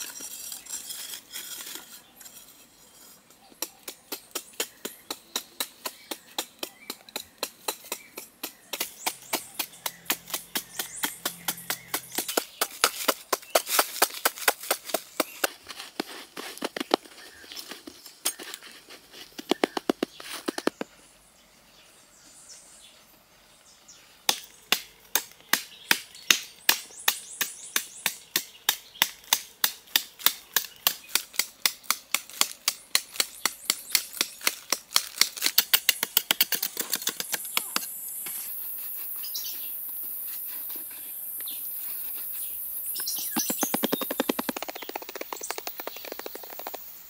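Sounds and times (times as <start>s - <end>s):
metal blade chopping hard earth: 4.1s - 15.5s.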